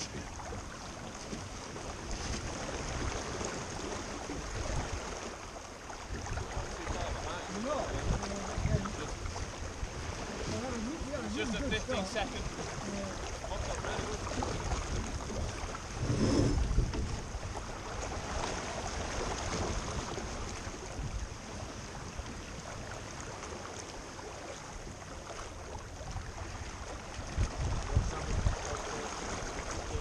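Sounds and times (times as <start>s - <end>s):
water splashing along boat hull: 0.0s - 30.0s
wind buffeting microphone: 6.1s - 22.6s, 25.8s - 30.0s.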